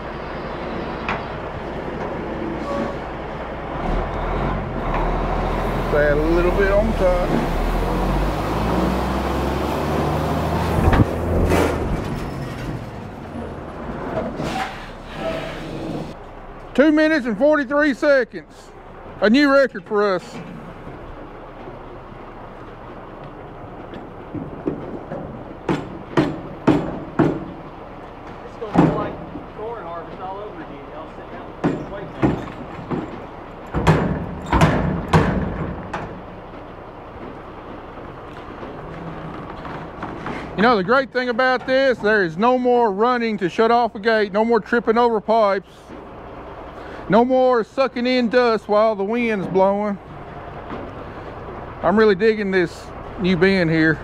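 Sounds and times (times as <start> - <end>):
diesel truck engine running: 0.0 - 54.0
loud bangs like slams: 33.7 - 36.2.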